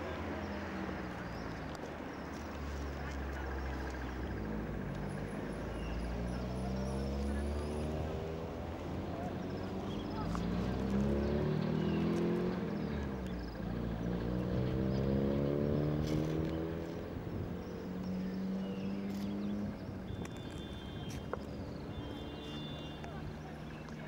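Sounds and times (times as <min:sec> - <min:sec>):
vehicle engines passing: 0:00.0 - 0:24.0.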